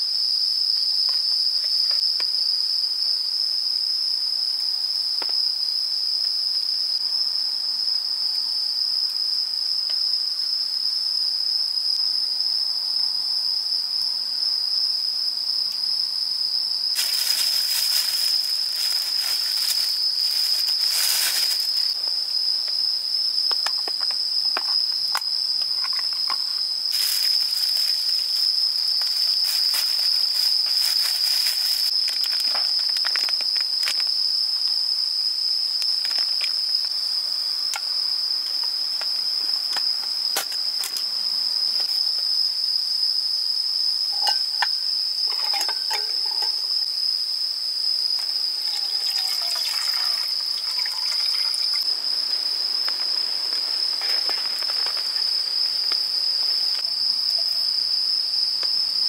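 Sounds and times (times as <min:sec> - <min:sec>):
night insects trilling: 0:00.0 - 0:59.0
plastic bag crinkling: 0:17.0 - 0:21.9, 0:26.9 - 0:28.4, 0:29.0 - 0:33.2.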